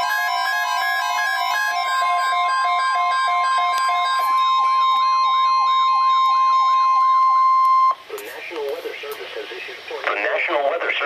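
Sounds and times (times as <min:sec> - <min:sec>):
steady warning tone: 0:00.0 - 0:08.0
stepped electronic tune: 0:00.0 - 0:08.0
warbling siren: 0:00.0 - 0:08.0.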